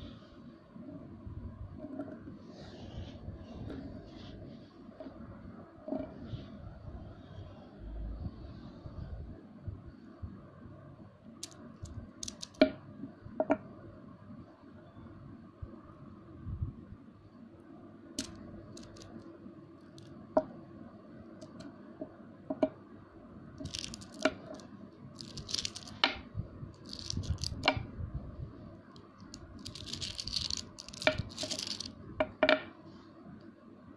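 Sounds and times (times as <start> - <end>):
magnet balls clicking together: 11.4 - 12.7, 18.2 - 20.1, 21.4 - 21.7, 23.6 - 26.2, 26.8 - 27.8, 29.0 - 32.0
rustling: 25.2 - 26.0, 26.8 - 27.7, 29.2 - 31.9.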